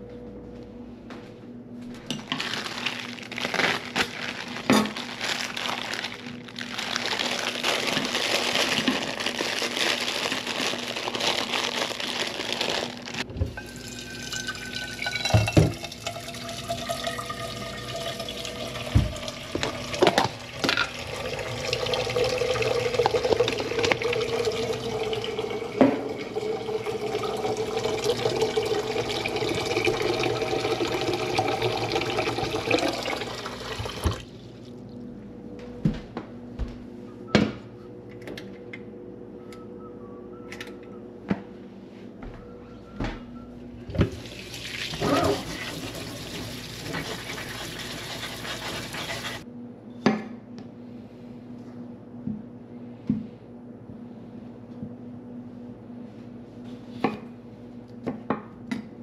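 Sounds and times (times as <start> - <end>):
water running from a tap: 13.6 - 34.2, 44.2 - 49.4
container filling with water: 13.6 - 34.3, 44.1 - 49.4.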